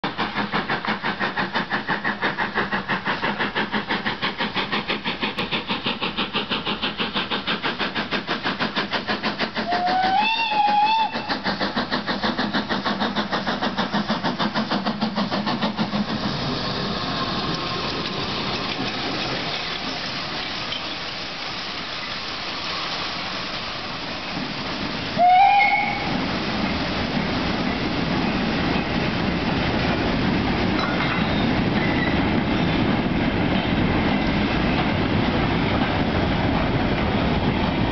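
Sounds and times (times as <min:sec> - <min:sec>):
steam locomotive exhaust beats: 0:00.0 - 0:37.9
steam whistle: 0:09.6 - 0:11.3, 0:25.2 - 0:26.2
freight wagons rolling past: 0:16.4 - 0:21.1.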